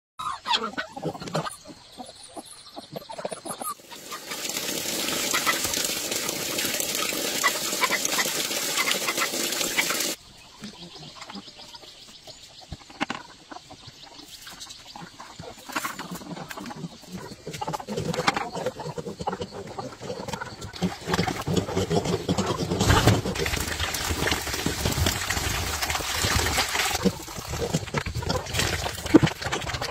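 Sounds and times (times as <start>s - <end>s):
farm animals calling: 0.2s - 11.9s, 12.7s - 23.6s.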